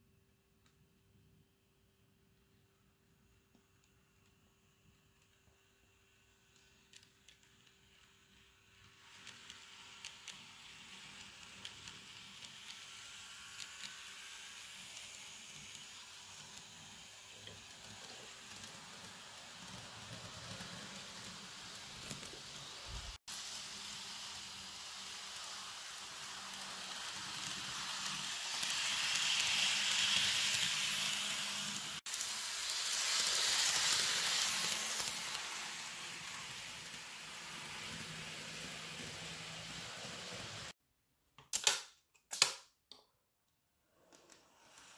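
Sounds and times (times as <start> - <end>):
model train motor whirring: 4.9 - 40.7.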